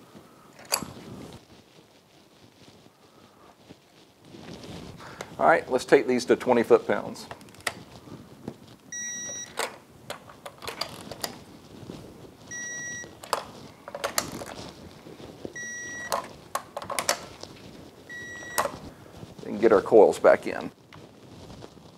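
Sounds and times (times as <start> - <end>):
torque wrench beeping: 9.0 - 9.6, 15.6 - 16.2.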